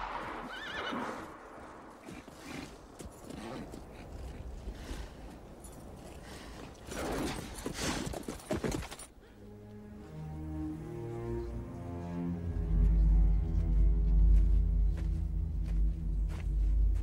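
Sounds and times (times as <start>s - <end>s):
horse hooves stamping on dusty ground: 0.0s - 9.2s
low steady music: 9.2s - 17.0s.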